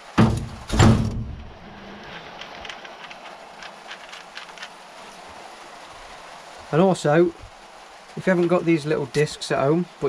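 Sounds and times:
hook-and-loop disc ripping off: 0:01.9 - 0:04.8.

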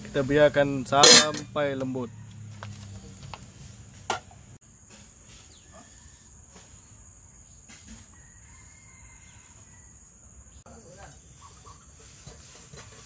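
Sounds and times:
faint rural background: 0:00.0 - 0:13.0
sharp clink: 0:01.0 - 0:01.5.

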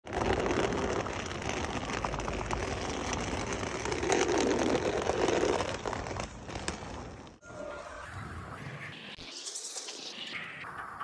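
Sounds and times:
bag wheels rolling over bricks: 0:00.0 - 0:07.4.

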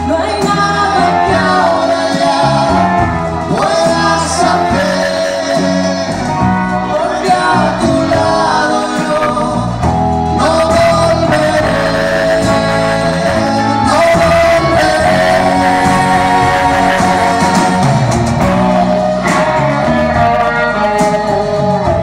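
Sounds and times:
women singing: 0:00.0 - 0:09.8, 0:10.4 - 0:18.0
live pop-rock band playing: 0:00.0 - 0:22.0.

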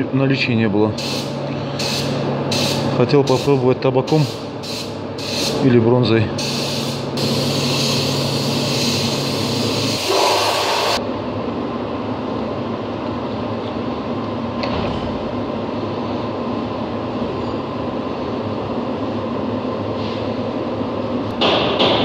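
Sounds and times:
spray gun hissing: 0:01.0 - 0:03.5, 0:04.1 - 0:05.6, 0:06.4 - 0:11.0.

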